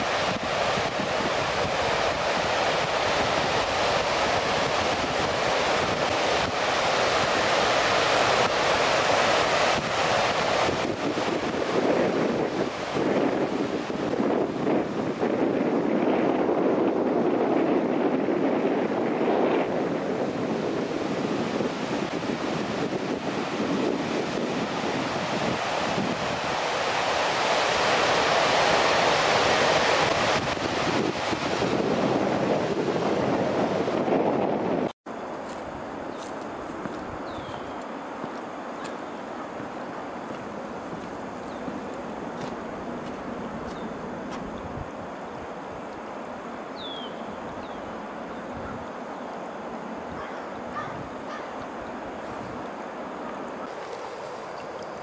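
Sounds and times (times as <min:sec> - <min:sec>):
surf breaking on stony beach: 0:00.0 - 0:17.2, 0:18.3 - 0:34.1
wind buffeting microphone: 0:00.0 - 0:55.0.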